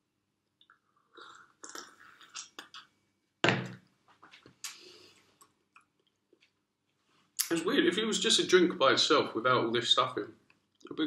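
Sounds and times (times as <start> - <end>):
person slurping a drink: 1.2 - 2.9.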